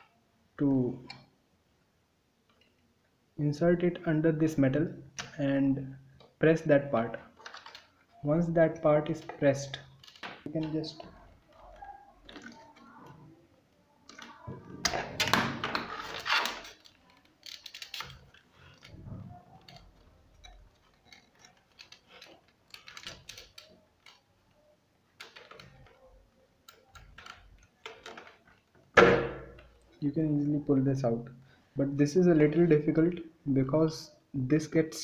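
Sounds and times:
plastic clicks and scrapes: 7.3 - 8.2, 9.8 - 13.4, 14.1 - 30.0.

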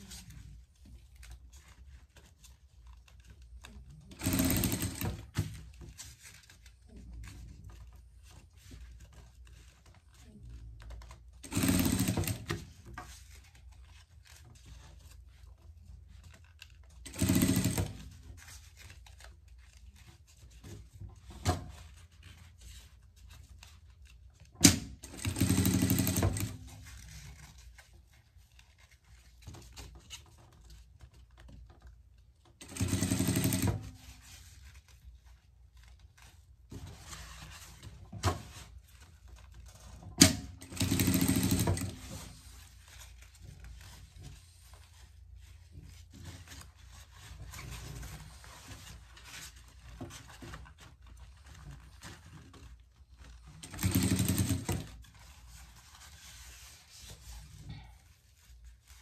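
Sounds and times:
sewing machine stitching: 4.1 - 5.7, 11.4 - 12.8, 17.0 - 18.2, 24.6 - 26.9, 32.6 - 34.1, 40.2 - 42.5, 53.5 - 55.0.

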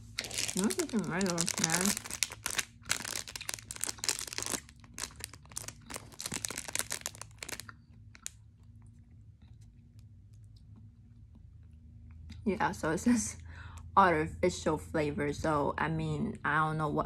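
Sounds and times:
plastic wrapper crinkling: 0.0 - 8.4.

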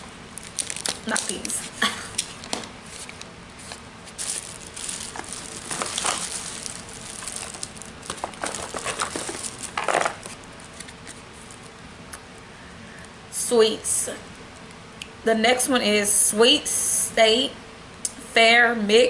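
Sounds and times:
candy wrapper crinkling: 0.3 - 11.7.

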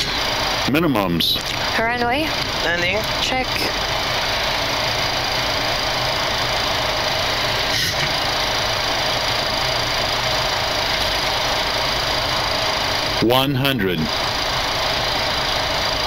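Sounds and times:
jet engines humming: 0.0 - 16.0.

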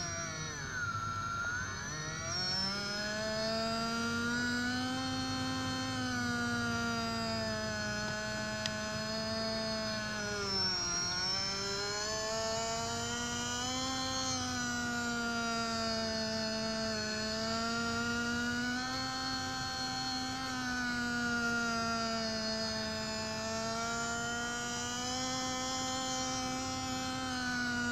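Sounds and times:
small electric motors whining: 0.0 - 27.9.

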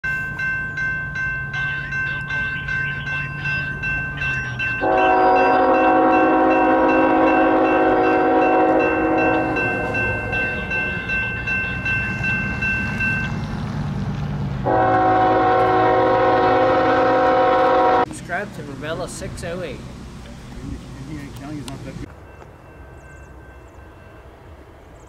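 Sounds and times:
locomotive low rumble: 0.1 - 25.0
locomotive air horn blasts: 4.8 - 10.6, 14.6 - 18.1.

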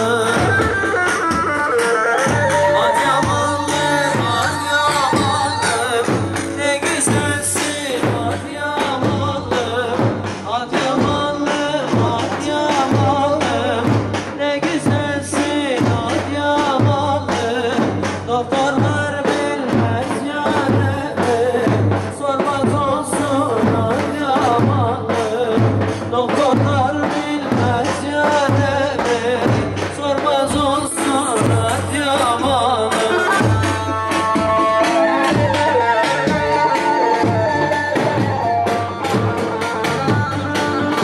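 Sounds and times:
wavering folk melody: 0.0 - 7.3
person singing: 0.0 - 41.0
steady drum beat: 0.0 - 41.0.

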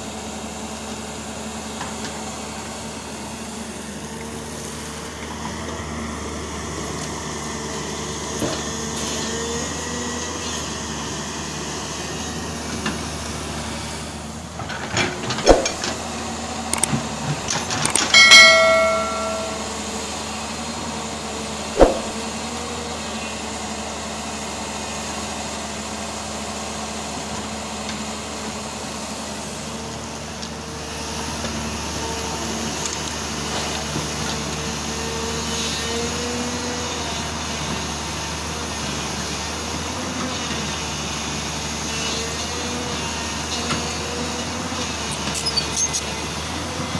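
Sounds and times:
excavator engine and hydraulics: 0.0 - 46.9
sharp metallic knocks: 15.4 - 15.8, 17.9 - 19.8, 21.8 - 22.2
high-pitched ringing squeal: 18.2 - 19.8.

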